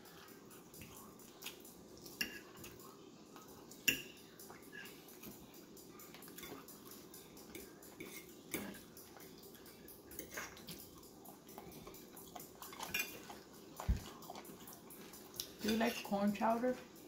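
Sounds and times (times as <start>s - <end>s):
chewing: 0.0s - 16.0s
fork scraping a ceramic plate: 8.0s - 8.8s.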